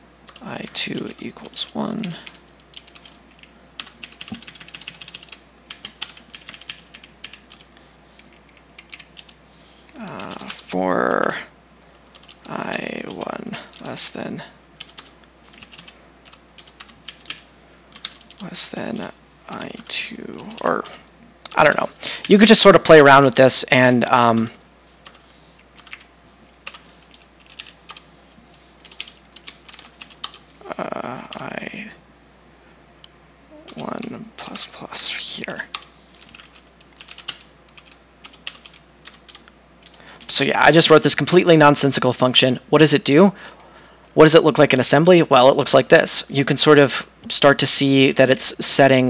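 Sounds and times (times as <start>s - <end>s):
typing on computer keyboard: 0.3s - 7.7s, 8.3s - 9.4s, 12.1s - 13.9s, 14.8s - 18.4s, 25.8s - 28.0s, 28.8s - 30.4s, 35.7s - 40.0s.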